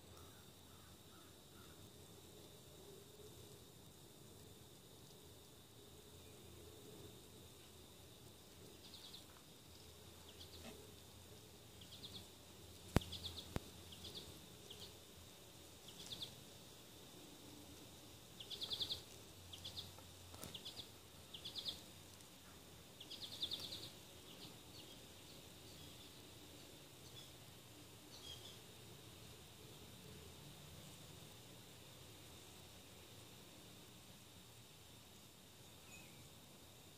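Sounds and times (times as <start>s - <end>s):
faint high-pitched chirping: 8.6s - 11.0s, 11.6s - 15.1s, 15.8s - 16.4s, 18.3s - 27.4s, 28.1s - 28.7s, 35.6s - 36.9s.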